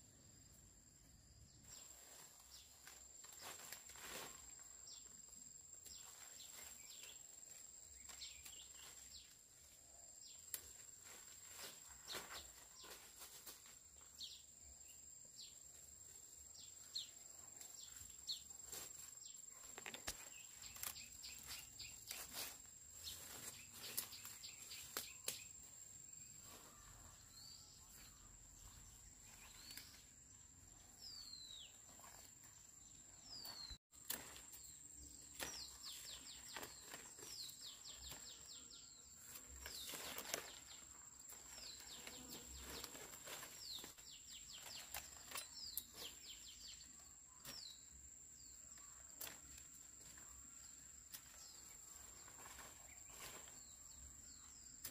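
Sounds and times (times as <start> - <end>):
birds chirping: 16.5 - 26.2.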